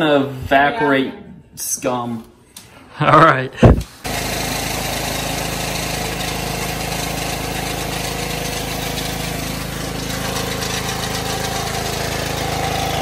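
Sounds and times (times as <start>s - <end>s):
pressure washer engine running: 4.0s - 13.0s
water spraying on concrete: 4.0s - 13.0s.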